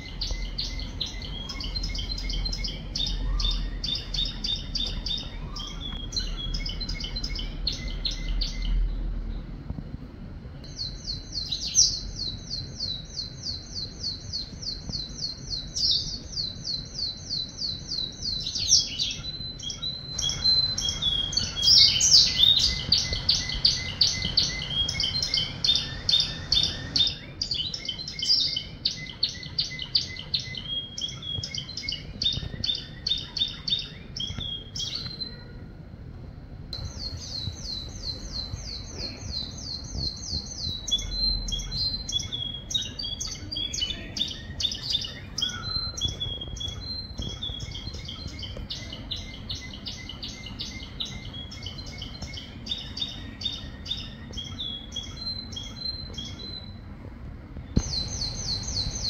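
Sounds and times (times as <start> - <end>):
canary singing trills: 0.0 - 9.5, 10.6 - 35.6, 36.8 - 56.9, 57.7 - 59.0.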